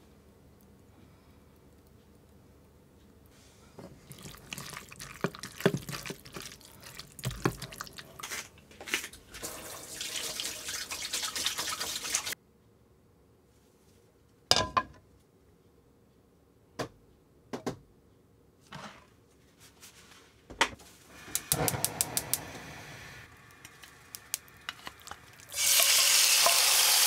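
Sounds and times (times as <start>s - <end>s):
wet squishing of meat in sauce: 3.9s - 9.1s.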